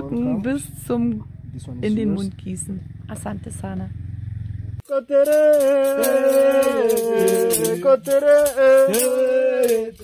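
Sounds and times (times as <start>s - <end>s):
rattle shaking: 4.8s - 10.0s
person singing sliding notes: 4.9s - 10.0s.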